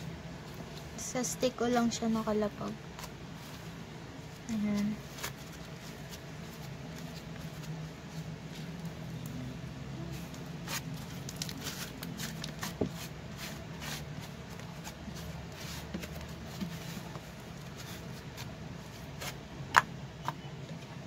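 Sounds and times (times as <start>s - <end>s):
slime squishing: 10.0s - 18.6s.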